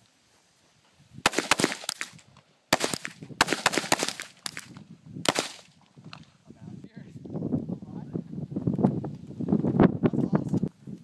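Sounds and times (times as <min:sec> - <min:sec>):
handgun shots: 0:01.3 - 0:05.7.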